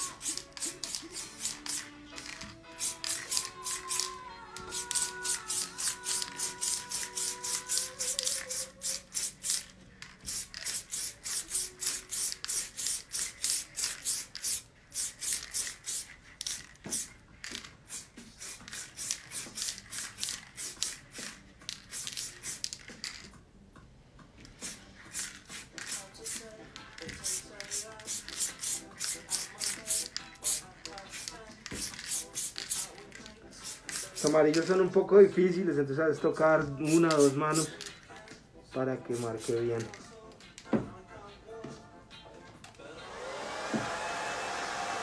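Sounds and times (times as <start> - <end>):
spray paint can hissing: 0.0 - 23.2, 24.5 - 34.8, 36.8 - 38.0, 39.0 - 40.0
faint background music: 0.0 - 45.0.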